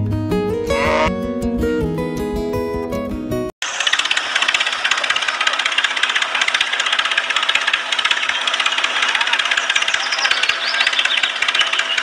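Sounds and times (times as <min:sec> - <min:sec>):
toy tractor motor rattling buzz: 0:03.6 - 0:12.0.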